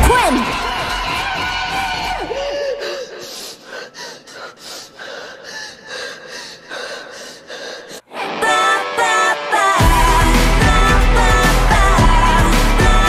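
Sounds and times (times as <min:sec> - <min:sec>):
pop song with singing: 0:00.0 - 0:03.3, 0:08.0 - 0:13.0
woman crying with gasping breaths: 0:02.3 - 0:08.1.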